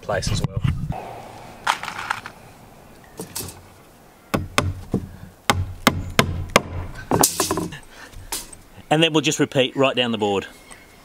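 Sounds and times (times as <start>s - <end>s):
hammer striking nail: 4.3s - 7.6s.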